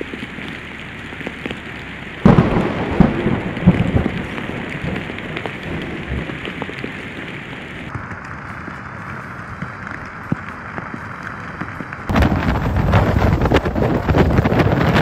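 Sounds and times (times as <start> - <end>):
heavy rain pouring: 0.0 - 15.0
loud low rumble: 12.1 - 15.0.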